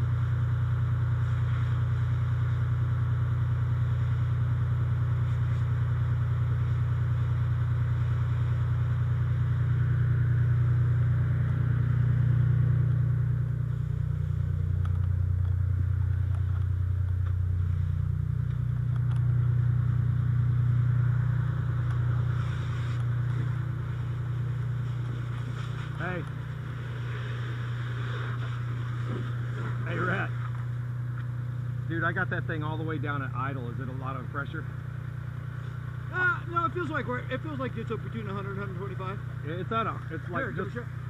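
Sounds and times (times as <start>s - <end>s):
fire engine engine droning: 0.0s - 41.0s.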